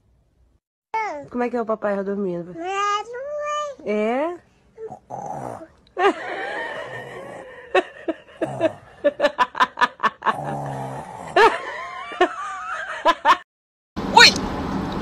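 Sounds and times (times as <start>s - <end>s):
toddler making snore noises: 4.8s - 5.8s, 6.8s - 7.5s.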